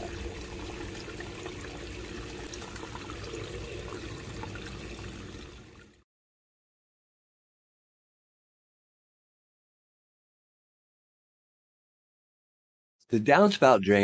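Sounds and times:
water trickling into drain: 0:00.0 - 0:06.0.

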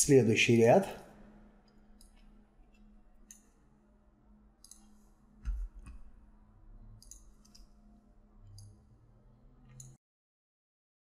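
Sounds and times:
computer mouse clicks: 0:01.6 - 0:03.5, 0:04.6 - 0:06.1, 0:07.0 - 0:07.8, 0:08.4 - 0:08.8, 0:09.6 - 0:10.0.

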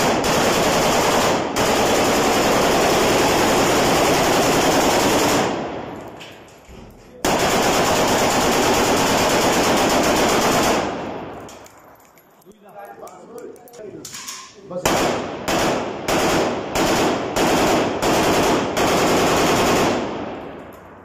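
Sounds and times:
rifle firing automatic bursts: 0:00.0 - 0:05.7, 0:07.2 - 0:11.4, 0:14.8 - 0:20.5.

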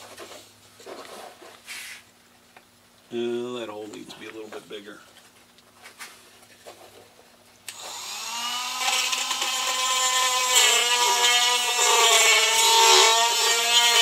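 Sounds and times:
rotary tool grinding wood: 0:07.7 - 0:14.0.

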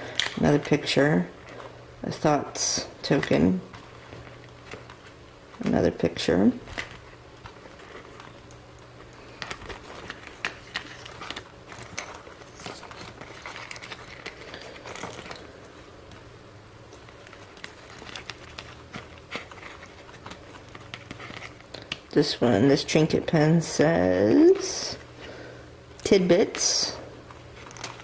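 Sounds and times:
low steady hum: 0:00.0 - 0:28.0
paper pages rustling: 0:02.8 - 0:16.3, 0:16.9 - 0:22.2, 0:26.5 - 0:28.0.

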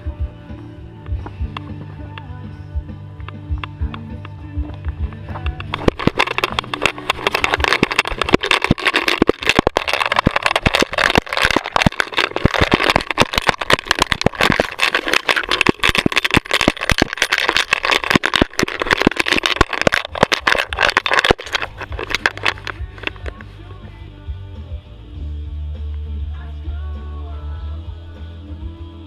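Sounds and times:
camera clattering and rustling: 0:03.2 - 0:23.5.

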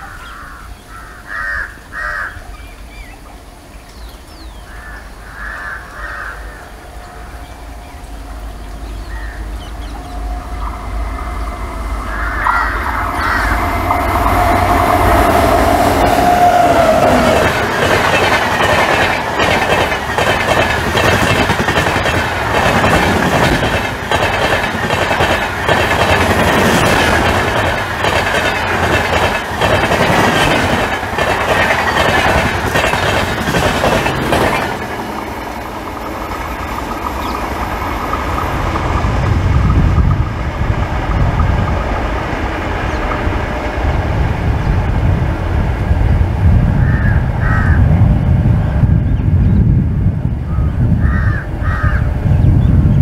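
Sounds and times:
low rumble of receding train: 0:00.0 - 0:53.0
rush of passing train coaches: 0:00.0 - 0:53.0
train wheels clattering over rail joints: 0:16.2 - 0:43.4.

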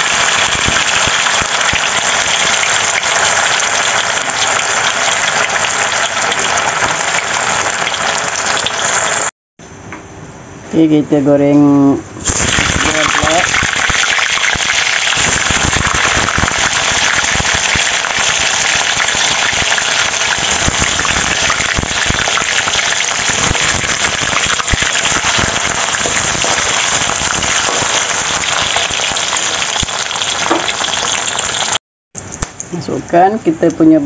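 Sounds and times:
tofu sizzling in hot oil: 0:00.0 - 0:09.3, 0:12.2 - 0:31.8.

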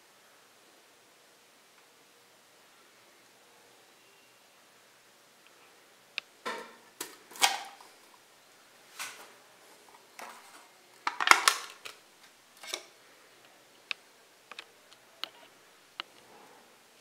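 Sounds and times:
foil seal crinkling and tearing: 0:10.2 - 0:12.0.

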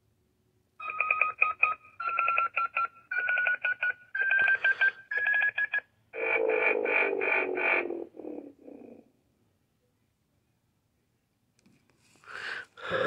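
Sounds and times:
toy electronic tones: 0:00.8 - 0:07.6.

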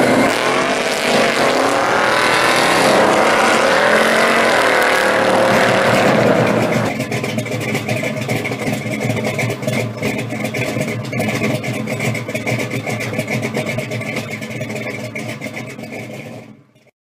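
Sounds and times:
engine idling: 0:00.0 - 0:16.9.

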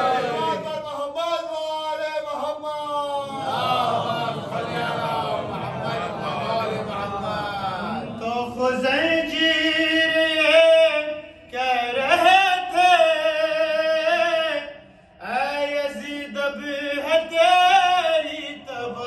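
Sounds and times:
man singing: 0:07.0 - 0:19.0.

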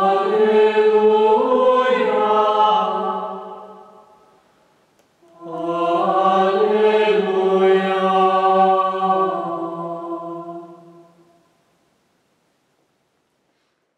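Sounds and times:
mixed choir singing a cappella: 0:00.0 - 0:04.1, 0:05.2 - 0:11.4.

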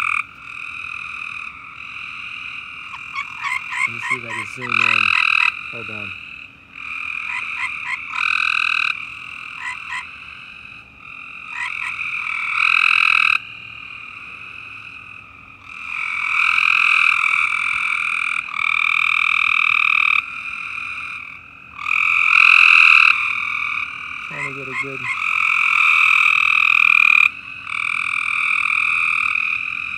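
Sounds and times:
frogs calling: 0:00.0 - 0:29.9
short frog chirps: 0:00.0 - 0:29.9.

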